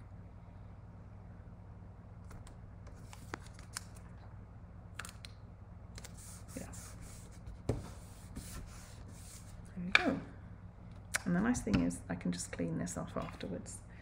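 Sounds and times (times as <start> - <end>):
tape and paper clicks: 2.2 - 4.1.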